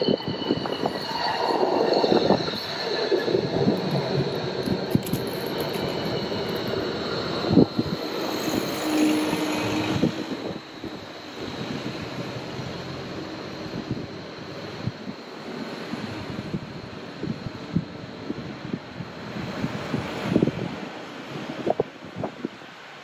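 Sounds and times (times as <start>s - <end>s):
steel wheels squealing on rails: 0.0s - 22.9s
rail vehicle running noise: 0.0s - 23.0s.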